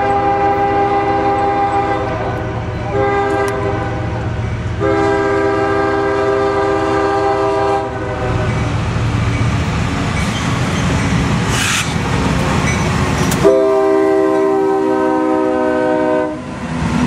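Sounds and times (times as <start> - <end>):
train horn: 0.0 - 8.7, 13.4 - 16.5
train rumbling past: 0.0 - 17.0.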